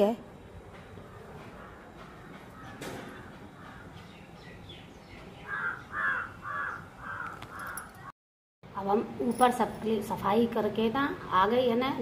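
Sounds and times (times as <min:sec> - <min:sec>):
crow cawing: 0:01.6 - 0:04.0, 0:05.5 - 0:08.1.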